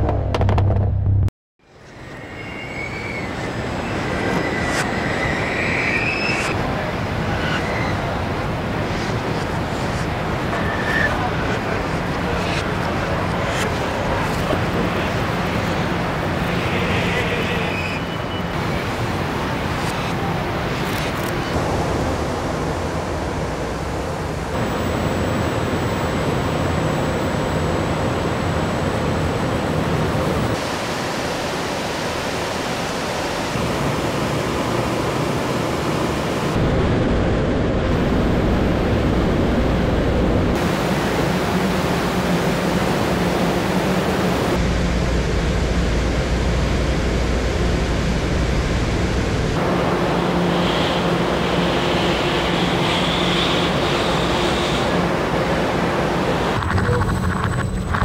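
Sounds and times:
assembly plant machinery: 1.7 - 30.8
low hum: 36.6 - 40.6.

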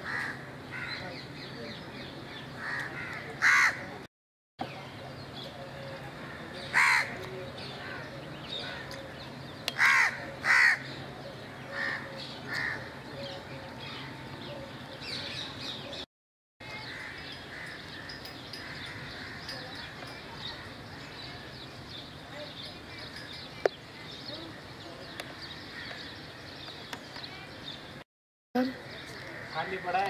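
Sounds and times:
crows cawing: 0.0 - 1.0, 2.6 - 3.9, 6.2 - 7.2, 9.8 - 10.9, 11.7 - 12.9, 16.8 - 19.6, 29.0 - 30.0
outdoor background noise: 0.0 - 28.0, 28.6 - 30.0.

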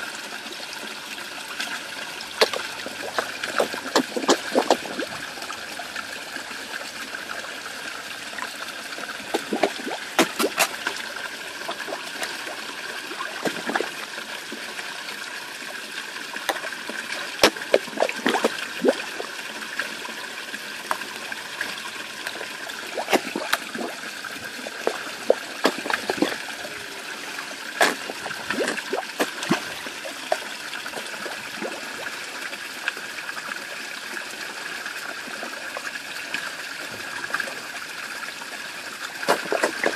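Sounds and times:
water trickling into pond: 0.0 - 39.9
fish splashing at surface: 1.6 - 5.6, 9.2 - 14.0, 16.4 - 19.3, 21.6 - 26.9, 27.7 - 31.9, 39.1 - 39.9.

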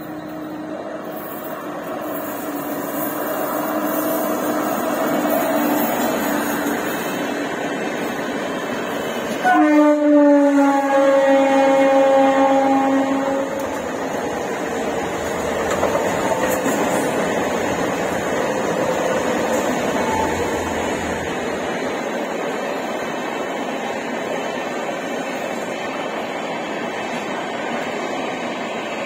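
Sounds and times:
trains rumbling past on rails: 0.0 - 29.0
train horn: 9.4 - 13.8.

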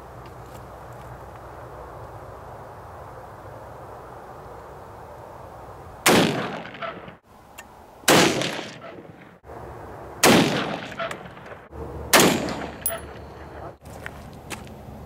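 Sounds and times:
rifle shots: 6.0 - 7.2, 8.1 - 9.3, 10.2 - 13.0.

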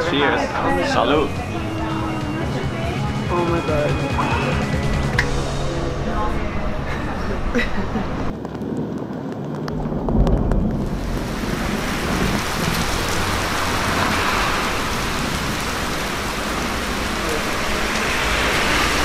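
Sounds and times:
heavy rain on pavement: 8.3 - 19.0.

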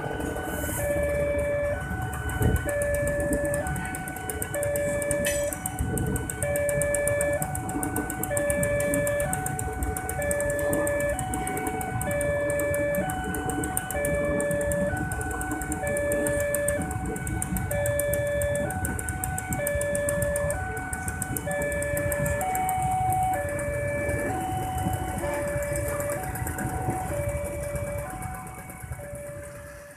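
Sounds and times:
train rumbling past: 0.0 - 29.9
two-note crossing alarm chime: 4.6 - 5.7.

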